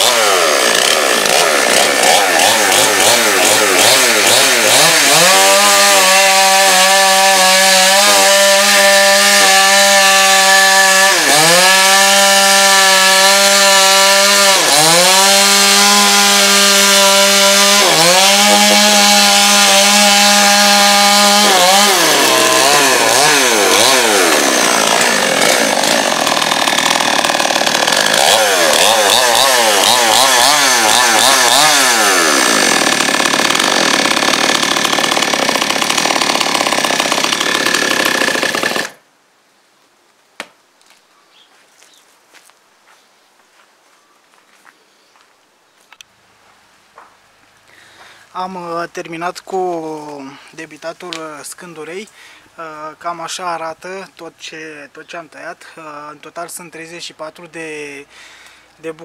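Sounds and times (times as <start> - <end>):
chainsaw cutting wood: 0.0 - 39.1.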